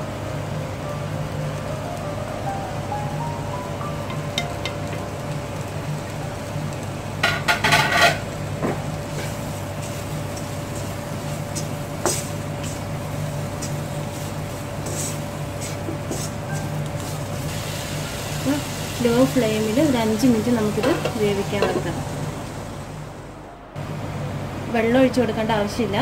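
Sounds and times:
steady low hum: 0.0 - 26.0
wooden spatula stirring in a wok: 4.8 - 19.4.

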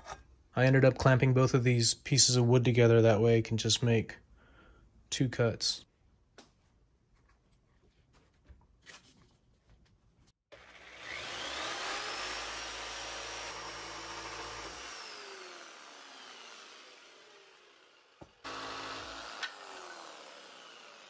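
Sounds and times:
jigsaw cutting wood: 10.5 - 21.0.

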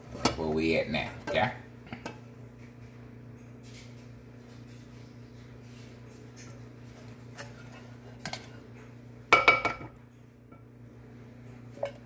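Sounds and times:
steady low hum: 0.0 - 12.0
spatula knocking saucepan: 9.3 - 10.0.

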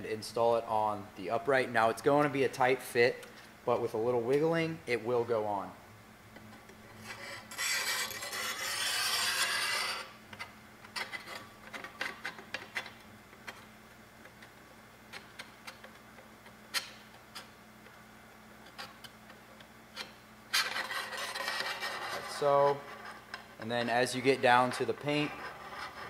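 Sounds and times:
rasping rub: 6.9 - 10.2, 20.0 - 26.0.

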